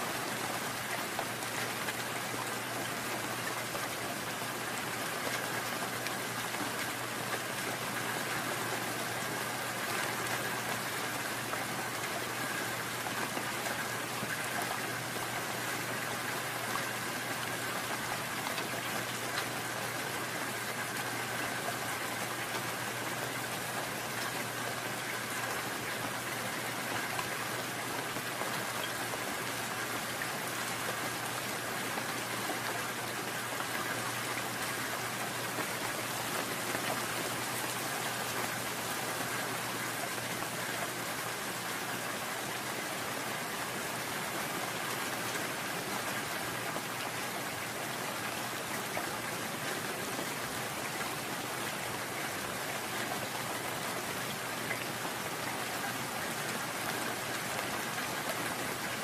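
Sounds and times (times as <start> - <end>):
gentle rain patter: 0.0 - 59.0.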